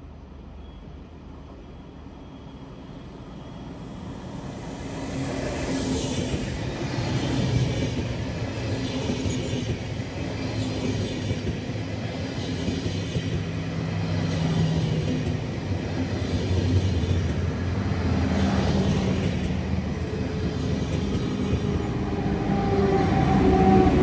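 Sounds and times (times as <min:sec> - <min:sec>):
train wheels rumbling on track: 0:00.5 - 0:24.0
high hiss: 0:03.8 - 0:06.8.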